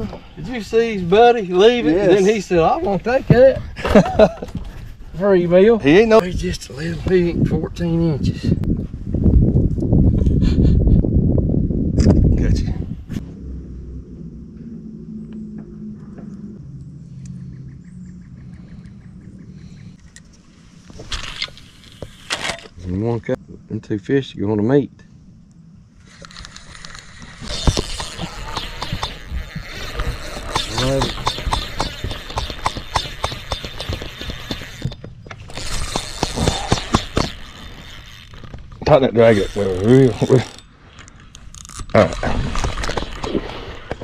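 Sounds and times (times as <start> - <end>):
boat motor humming: 13.2 - 20.4, 27.1 - 40.8
fishing reel clicking: 26.1 - 41.9.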